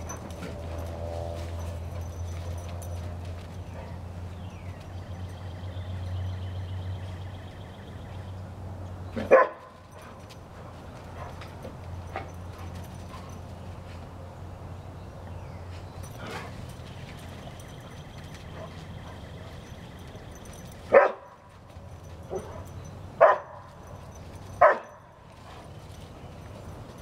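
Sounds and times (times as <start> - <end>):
dog barking: 9.2 - 9.8, 20.9 - 21.5, 22.3 - 23.7, 24.6 - 25.0.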